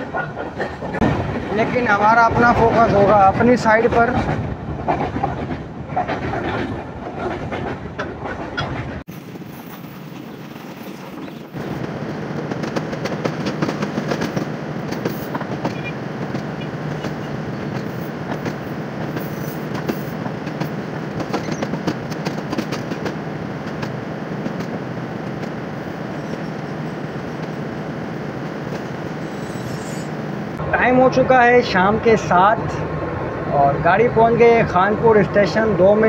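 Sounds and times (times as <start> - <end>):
clatter over rail joints: 0.0 - 9.0, 9.7 - 25.6
train wheels rumbling on track: 0.0 - 36.0.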